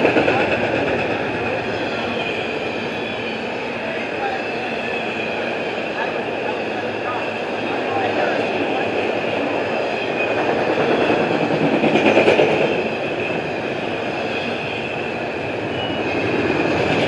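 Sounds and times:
freight train wheels rumbling on rail: 0.0 - 17.0.

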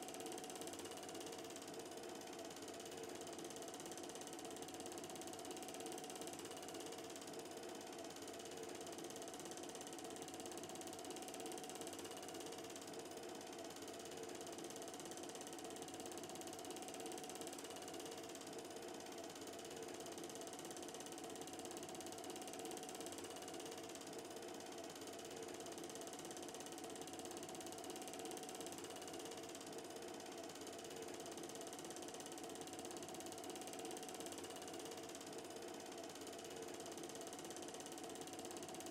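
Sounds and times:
film projector mechanical chatter: 0.0 - 38.9.

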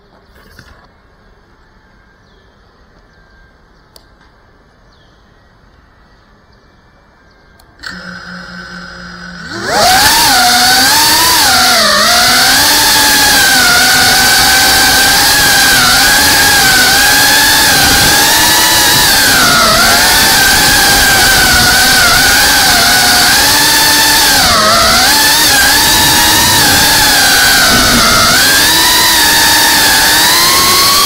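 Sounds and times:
drone motors whining: 7.0 - 31.0.

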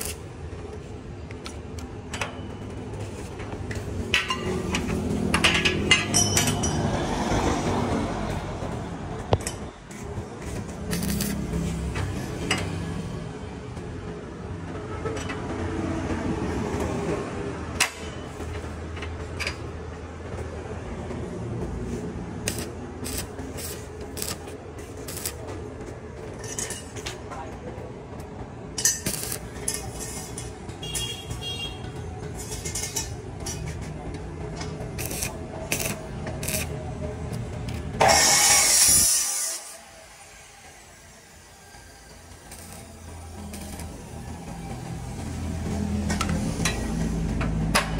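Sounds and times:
steel tube clinking on metal frame: 1.4 - 7.1, 26.2 - 27.2, 28.8 - 31.6, 32.3 - 33.9, 37.7 - 39.8
metallic scrapes and clicks: 9.3 - 12.8, 28.8 - 31.4, 32.3 - 39.8
loud harsh noise: 37.9 - 47.2.

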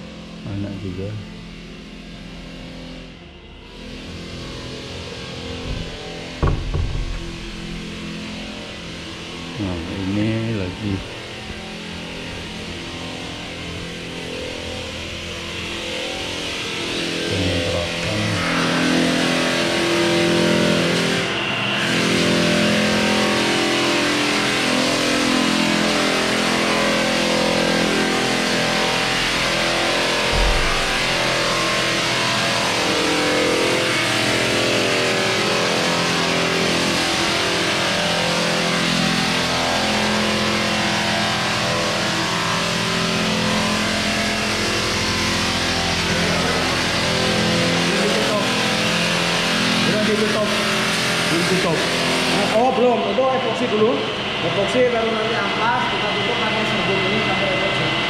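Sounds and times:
floor sanding machine running: 1.6 - 58.0
low thump: 5.6 - 8.2, 30.3 - 31.7.

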